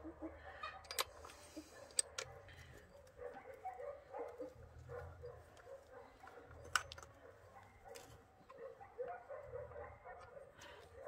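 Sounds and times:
screwdriver clicking and scraping metal: 0:00.8 - 0:02.3.

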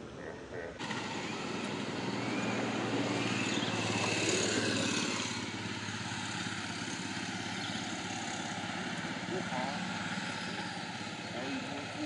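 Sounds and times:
motor engine running: 0:00.0 - 0:12.0.

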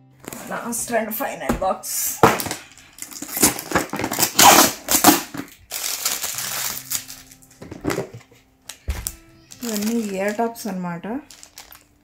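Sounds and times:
plastic crackling and crinkling: 0:00.2 - 0:00.8, 0:02.0 - 0:12.0.

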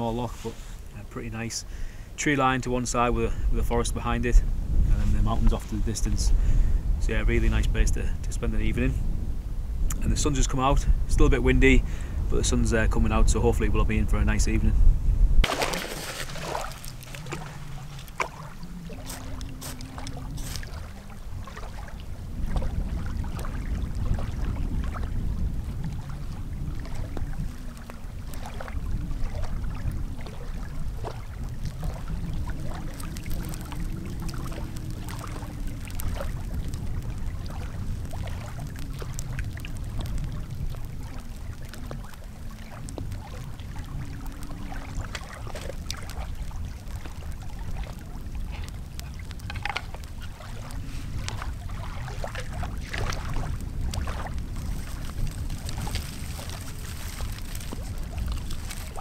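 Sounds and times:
wind buffeting microphone: 0:00.0 - 0:59.0
sticks cracking and snapping: 0:54.6 - 0:59.0.

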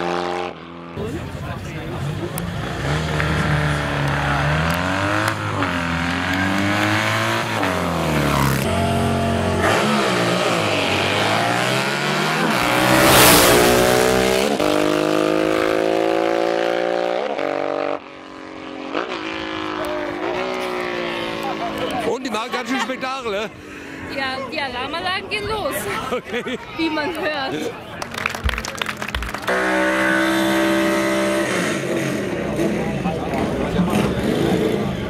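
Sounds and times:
motorcycle engine revving and accelerating: 0:00.0 - 0:22.0, 0:29.5 - 0:35.0.

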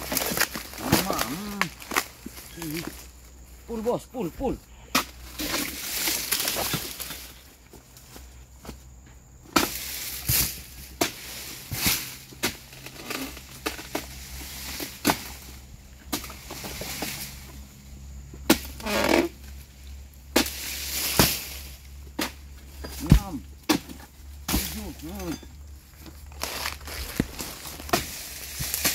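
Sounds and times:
chisel chopping palm fronds: 0:00.0 - 0:03.0, 0:04.9 - 0:07.3, 0:09.5 - 0:17.5, 0:18.4 - 0:19.4, 0:20.3 - 0:25.4, 0:26.0 - 0:28.9
fronds rustling: 0:00.0 - 0:28.9.

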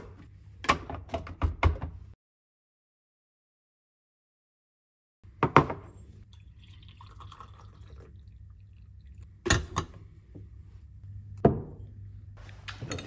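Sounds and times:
coffee pouring into mug: 0:06.2 - 0:09.3.

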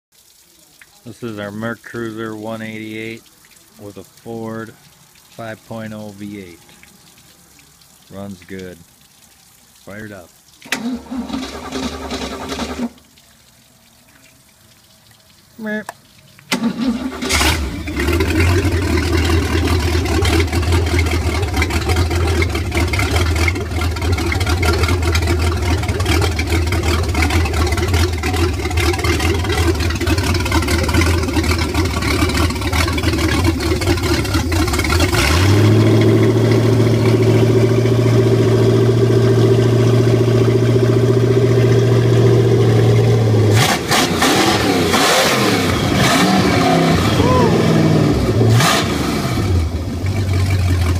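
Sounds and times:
boat engine starting and idling: 0:10.6 - 0:13.1, 0:16.5 - 0:50.9
engine revving higher: 0:35.0 - 0:50.1.

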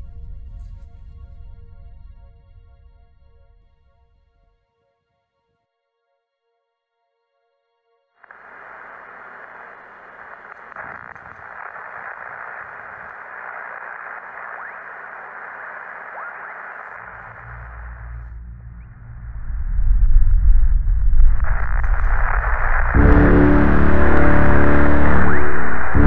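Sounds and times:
radio static hiss: 0:08.2 - 0:26.0
low rumble: 0:17.5 - 0:26.0.

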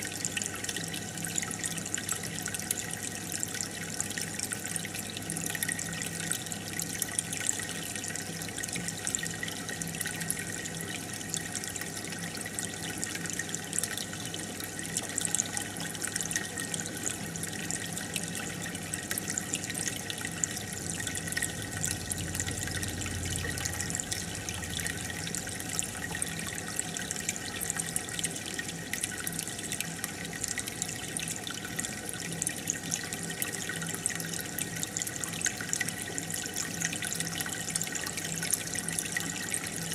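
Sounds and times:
aquarium water bubbling: 0:00.0 - 0:39.9
faint pump hum: 0:00.0 - 0:39.9.

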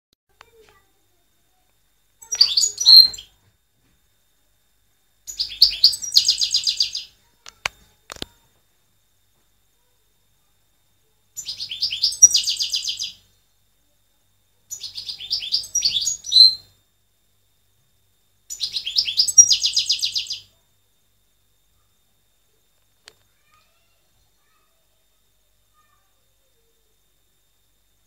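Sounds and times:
goldfinch singing: 0:02.2 - 0:03.3, 0:05.3 - 0:07.1, 0:11.4 - 0:13.2, 0:14.7 - 0:16.6, 0:18.5 - 0:20.4.

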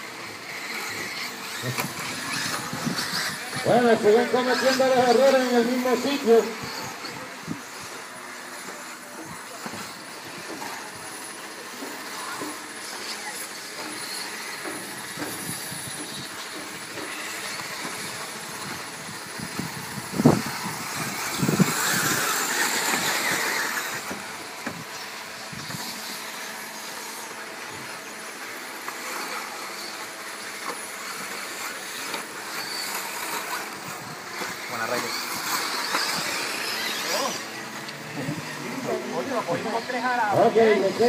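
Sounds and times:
high whine of electric motors: 0:00.0 - 0:41.0
tyres hissing on dirt: 0:19.4 - 0:41.0.

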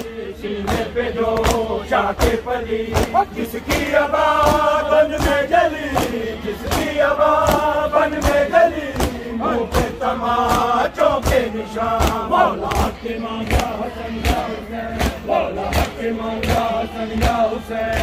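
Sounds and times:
men chanting in unison: 0:00.0 - 0:18.0
hands slapping chests: 0:00.7 - 0:14.4.

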